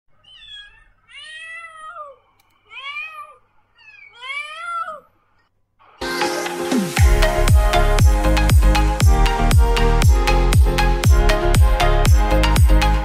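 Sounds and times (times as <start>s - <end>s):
cat meowing: 0.1s - 5.3s.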